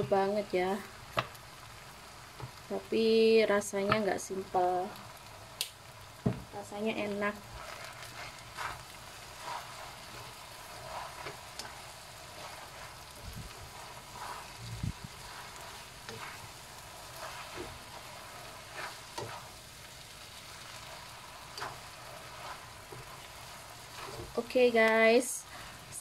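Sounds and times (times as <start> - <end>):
noodles sizzling in a wok: 0.0 - 26.0
low thump: 6.2 - 6.5
spatula scraping a wok: 6.8 - 26.0.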